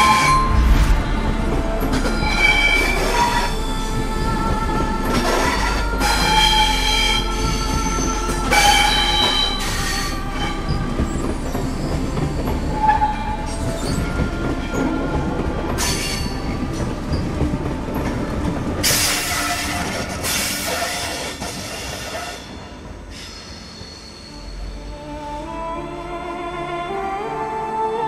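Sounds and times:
train wheels squealing: 5.2 - 15.1, 18.8 - 24.9.

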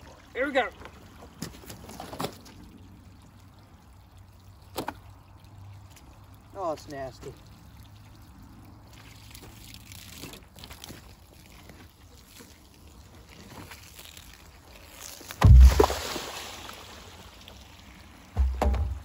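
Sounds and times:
water gushing and splashing: 0.0 - 19.0
barrel falling with heavy thud: 15.4 - 16.1, 18.4 - 19.0.

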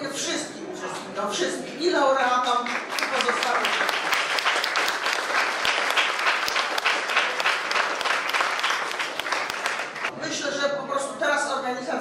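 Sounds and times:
audience applauding: 2.7 - 10.1.

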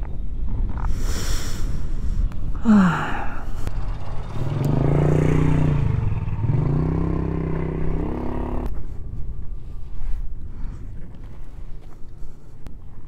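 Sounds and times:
motorcycle engine revving: 3.6 - 8.7.

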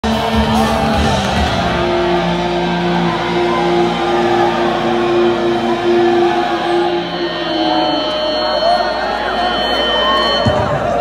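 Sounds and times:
drums and bass thumping: 0.0 - 7.0, 10.3 - 11.0.

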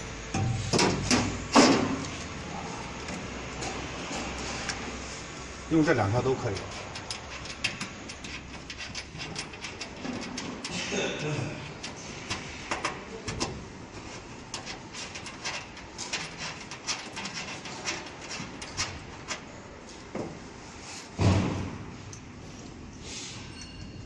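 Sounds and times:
cable plugs clicking and knocking: 6.4 - 13.7
loud thump: 21.2 - 21.8.

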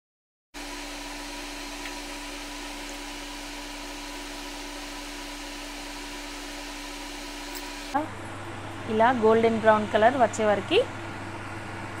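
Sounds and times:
food deep-frying in oil: 0.6 - 7.7
electrical hum: 0.6 - 12.0.

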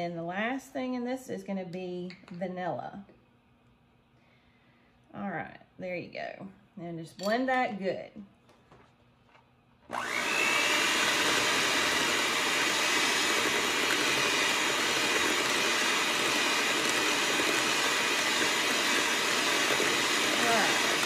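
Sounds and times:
electric hand mixer whirring: 9.9 - 21.0.

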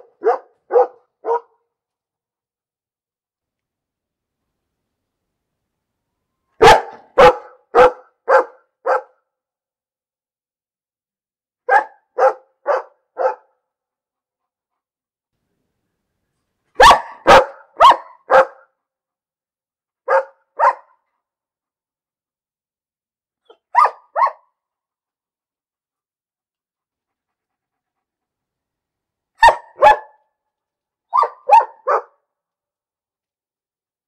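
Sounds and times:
dog barking: 0.0 - 1.7, 6.6 - 9.3, 11.6 - 13.6, 16.8 - 18.8, 20.0 - 21.1, 23.4 - 24.6, 29.4 - 30.4, 31.1 - 32.3.

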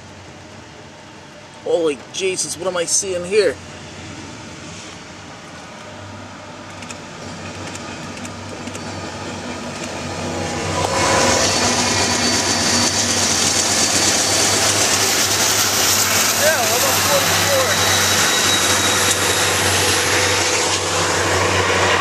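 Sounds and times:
diesel locomotive engine drone: 0.0 - 22.0
wheels on rails: 6.6 - 22.0.

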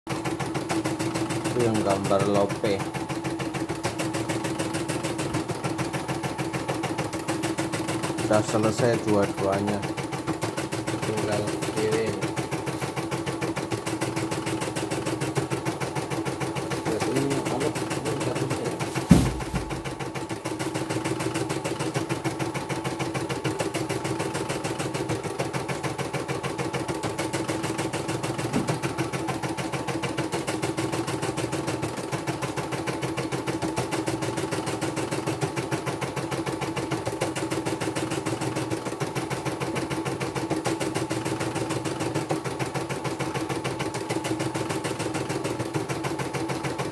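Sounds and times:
embroidery machine stitching: 0.1 - 46.9
loud thud: 19.0 - 20.0.

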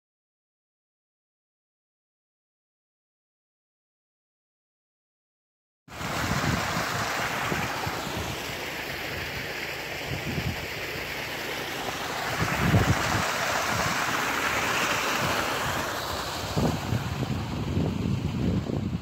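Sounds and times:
water gushing into ditch: 5.9 - 19.0
wind buffeting microphone: 6.0 - 8.6, 10.0 - 10.8, 12.2 - 19.0.

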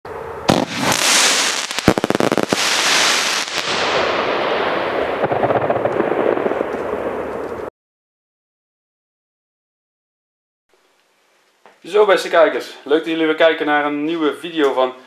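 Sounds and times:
firework fountain hissing: 0.5 - 4.4.

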